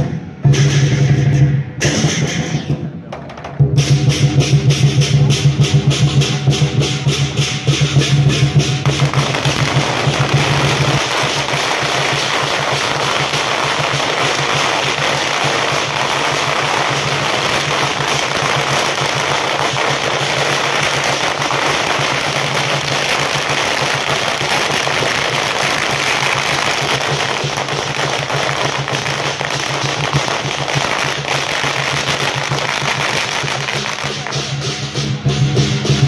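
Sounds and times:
firecrackers crackling: 0:00.0 - 0:36.0.

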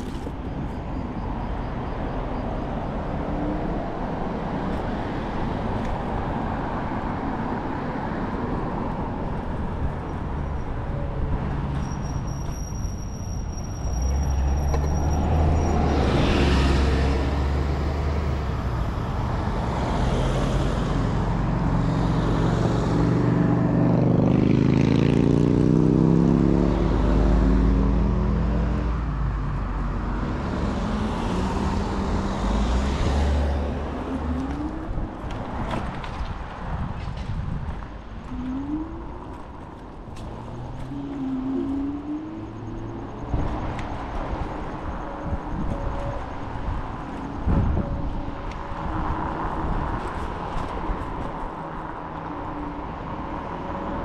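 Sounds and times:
scooter road noise: 0:02.1 - 0:54.0
wind buffeting microphone: 0:33.8 - 0:42.5, 0:43.2 - 0:53.3.

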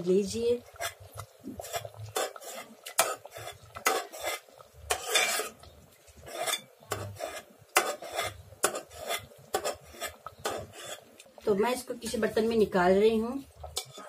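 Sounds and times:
steel spoon scraping metal pot: 0:00.6 - 0:11.1, 0:13.6 - 0:14.0.

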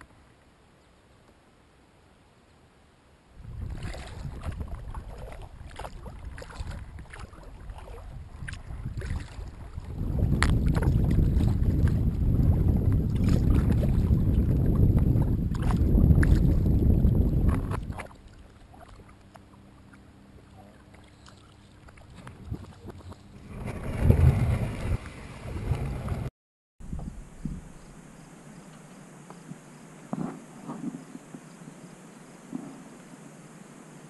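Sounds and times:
plastic kayak scraping on rocks: 0:23.0 - 0:26.3
insects chirping: 0:26.9 - 0:34.0.

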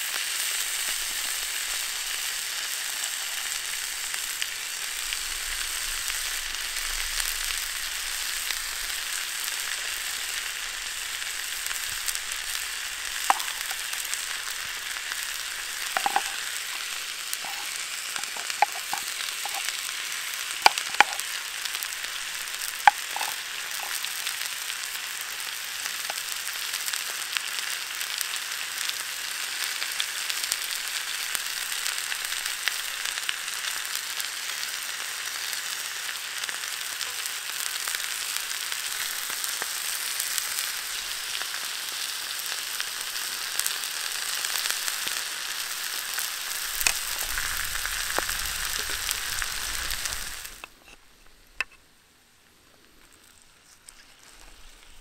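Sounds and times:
steak sizzling in a pan: 0:00.0 - 0:51.8, 0:53.1 - 0:55.0
sharp popping: 0:12.9 - 0:21.5, 0:22.2 - 0:24.4, 0:46.6 - 0:51.8.

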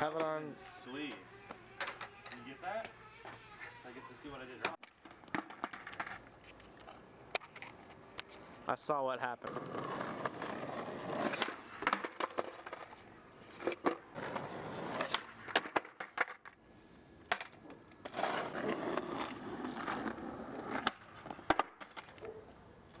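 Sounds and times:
skateboard slapping down on road: 0:04.6 - 0:06.2, 0:09.5 - 0:13.0, 0:13.6 - 0:16.5, 0:17.3 - 0:22.4
skateboard wheels rolling on asphalt: 0:04.6 - 0:08.1, 0:09.4 - 0:16.6, 0:17.2 - 0:23.0
skateboard tail pops: 0:15.0 - 0:16.6, 0:20.7 - 0:22.4.

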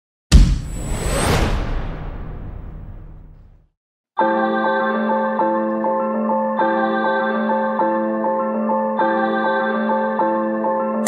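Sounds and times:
deep boom and whoosh: 0:00.3 - 0:03.7.

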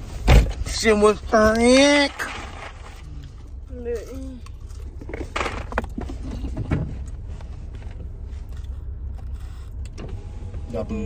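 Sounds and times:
low hum in car cabin: 0:00.0 - 0:11.0.

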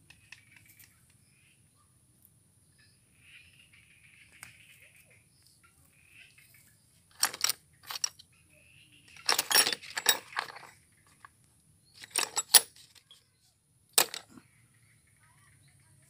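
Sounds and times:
metal tools clinking on metal: 0:07.1 - 0:08.2, 0:09.1 - 0:10.8, 0:12.0 - 0:13.2, 0:14.0 - 0:14.3.

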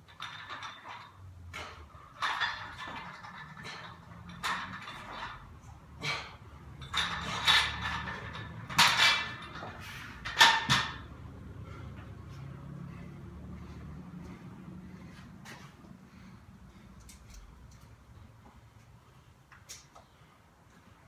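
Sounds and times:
barbell plates clanking: 0:00.0 - 0:05.5, 0:06.1 - 0:11.1.

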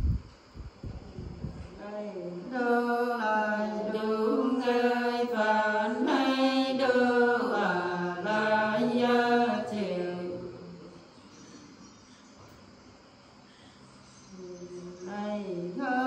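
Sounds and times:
women singing unaccompanied: 0:01.7 - 0:11.1, 0:14.3 - 0:16.0.

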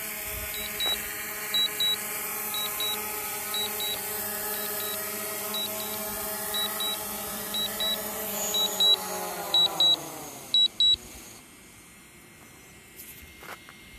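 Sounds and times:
drone propellers humming: 0:00.0 - 0:13.9
short high beeps: 0:01.6 - 0:02.0, 0:02.6 - 0:04.0, 0:07.6 - 0:09.0, 0:09.6 - 0:10.0, 0:10.6 - 0:11.0.

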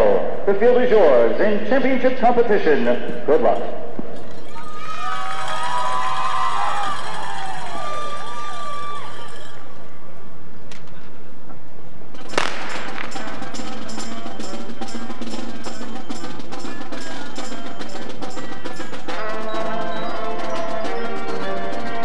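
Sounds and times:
drum and mallet strikes: 0:12.2 - 0:19.5
held instrument notes: 0:12.3 - 0:22.0.

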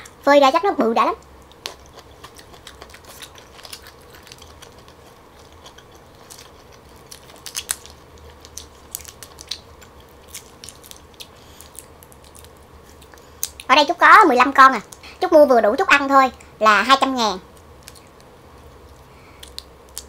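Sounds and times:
soft chewing: 0:01.2 - 0:13.7, 0:17.5 - 0:20.0
prawn shell cracking: 0:01.5 - 0:13.7.

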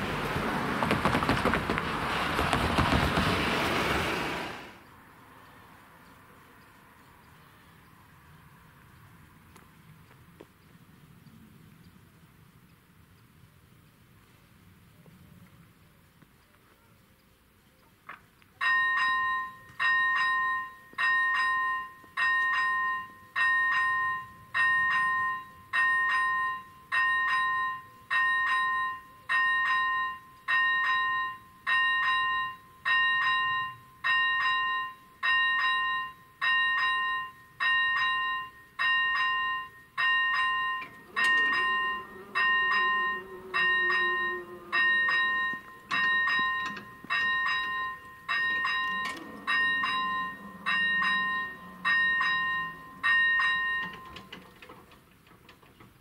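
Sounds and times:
level crossing warning bell: 0:18.6 - 0:55.7
barrier motor hum: 0:40.8 - 0:54.1.

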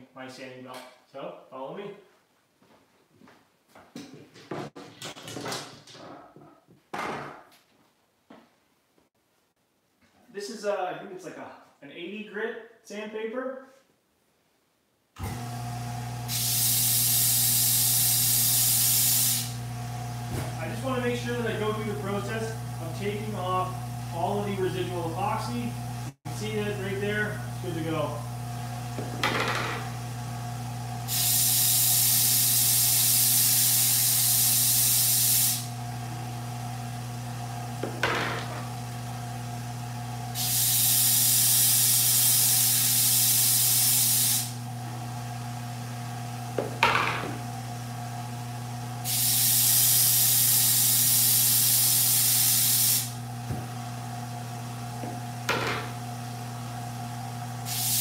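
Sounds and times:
grinding hiss of sanding: 0:57.7 - 0:58.0.

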